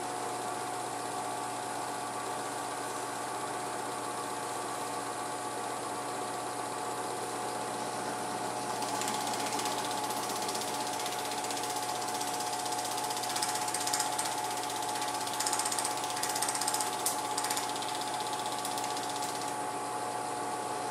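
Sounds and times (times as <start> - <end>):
steady hum: 0.0 - 20.9
film projector clattering: 8.5 - 19.6.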